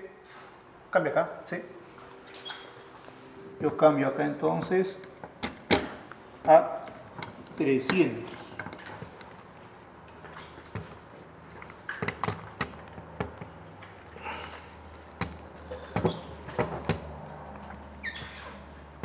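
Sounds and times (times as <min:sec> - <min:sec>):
test leads and plugs clicking: 0:04.9 - 0:17.8.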